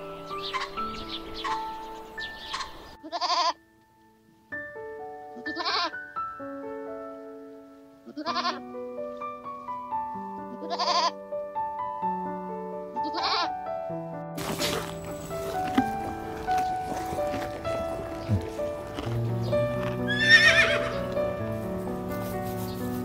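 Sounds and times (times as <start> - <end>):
background music with held notes: 0.0 - 23.0
goat bleating: 3.0 - 3.6, 5.4 - 5.9, 8.1 - 8.6, 10.5 - 11.2, 13.0 - 13.5.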